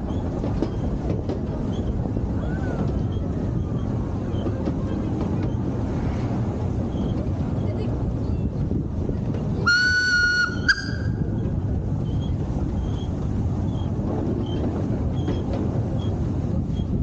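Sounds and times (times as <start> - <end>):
train rumbling along track: 0.0 - 17.0
steam locomotive whistle: 9.6 - 11.2.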